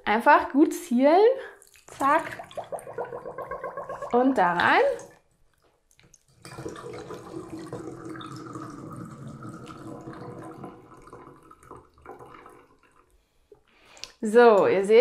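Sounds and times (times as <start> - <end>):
liquid pouring into bottle: 1.6 - 5.2, 6.0 - 13.2.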